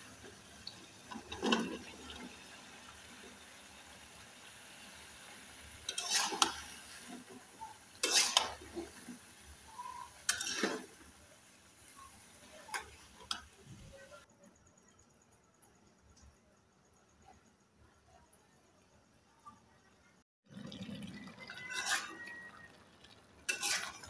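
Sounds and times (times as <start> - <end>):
faint sizzle: 0.0 - 24.0
metal spatula scraping pan: 5.9 - 7.3, 8.0 - 9.2, 9.8 - 11.0, 21.6 - 22.5, 23.5 - 24.0.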